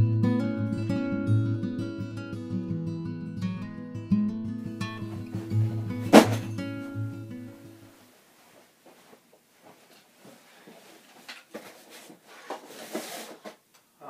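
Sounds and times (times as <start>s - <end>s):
guitar intro music: 0.0s - 7.8s
cardboard boxes knocking on wooden table: 5.2s - 6.5s.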